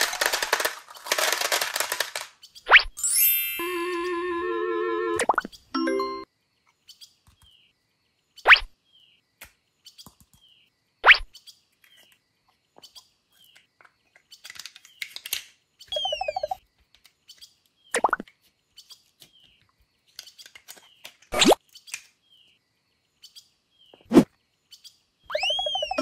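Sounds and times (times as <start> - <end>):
bird-like chirps: 15.8 - 26.0.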